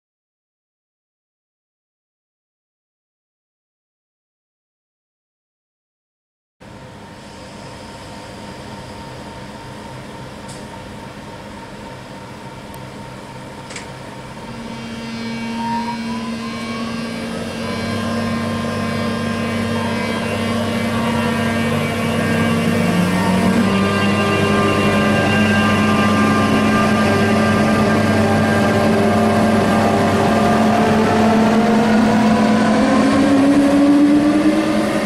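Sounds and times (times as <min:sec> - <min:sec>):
train traction equipment whining: 0:07.1 - 0:35.0.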